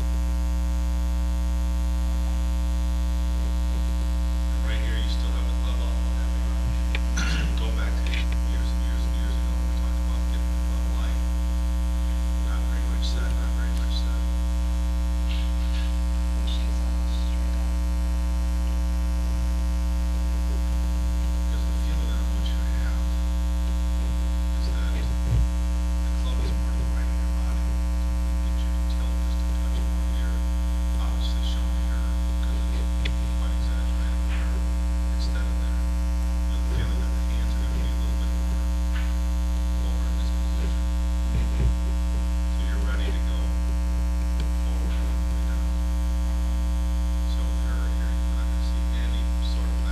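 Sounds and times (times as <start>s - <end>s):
electrical mains hum: 0.0s - 49.9s.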